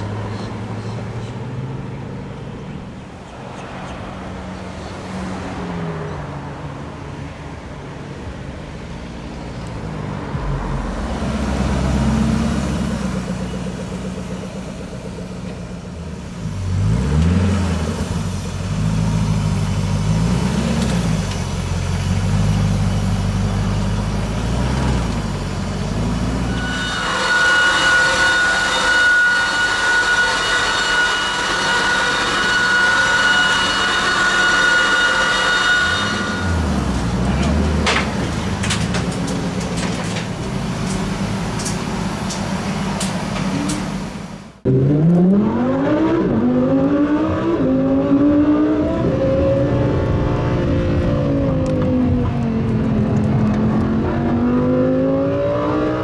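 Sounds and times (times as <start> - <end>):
high whine: 9.6 - 56.0
car engine revving: 9.7 - 29.1, 31.5 - 56.0.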